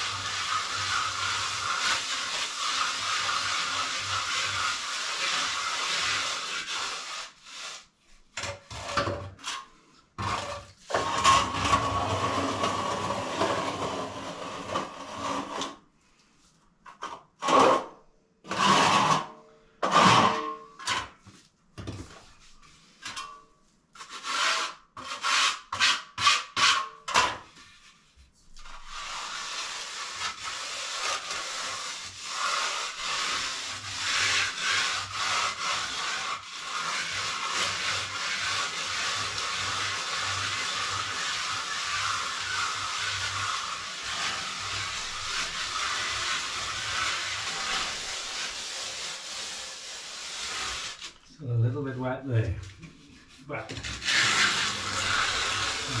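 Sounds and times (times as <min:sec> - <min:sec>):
hand float scraping cement render: 0:00.0 - 0:15.8, 0:18.5 - 0:23.4, 0:24.0 - 0:51.3, 0:52.8 - 0:56.0.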